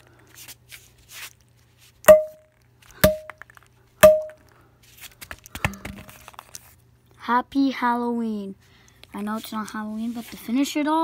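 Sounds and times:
hammer blows with ringing tone: 2.1s - 2.4s, 3.0s - 3.3s, 4.0s - 4.4s.

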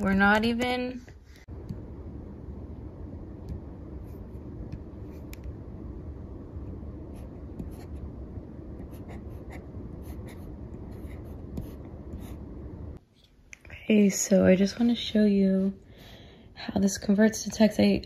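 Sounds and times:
steady low rumble: 0.0s - 13.0s
stylus scratching on tablet screen: 8.7s - 12.5s.

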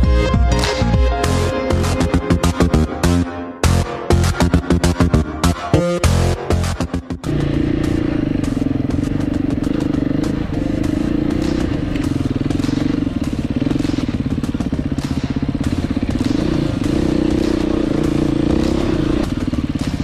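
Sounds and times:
motorcycle engine running: 6.7s - 20.0s.

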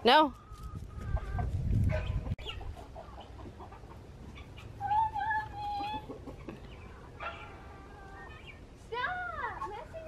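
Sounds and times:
chickens clucking: 0.0s - 10.0s.

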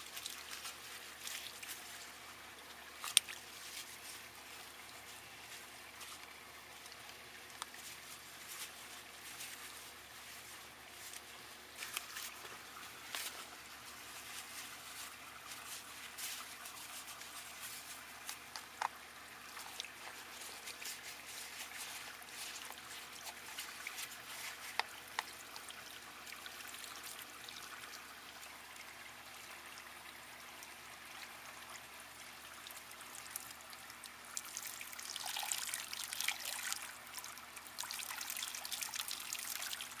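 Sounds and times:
hose water trickling and splashing: 0.0s - 40.0s
small knocks and ticks: 6.0s - 8.8s, 16.2s - 25.4s.

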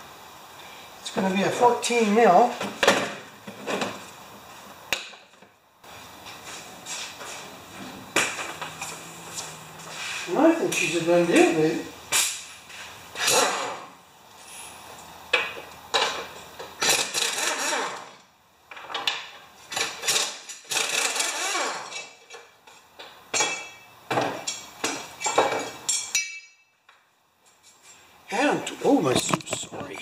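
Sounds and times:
metal tools clanking: 23.4s - 26.7s
metal ringing: 25.2s - 26.7s.

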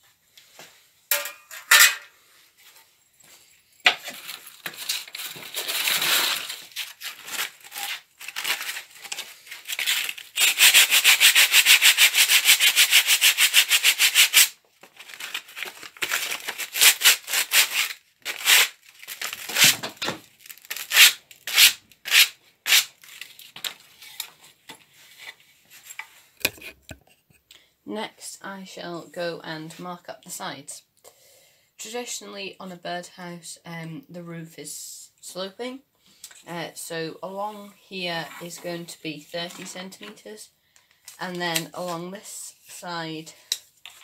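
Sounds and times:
sandpaper rasping on wood: 9.8s - 14.6s, 20.9s - 22.9s.

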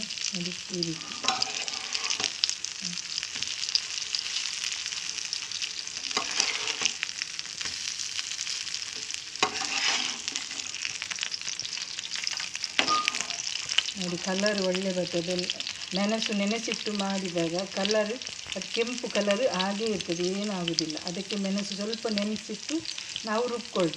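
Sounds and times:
fish sizzling in a frying pan: 0.0s - 23.9s
spatula scraping a pan: 1.0s - 2.5s, 6.0s - 7.0s, 8.5s - 11.1s.

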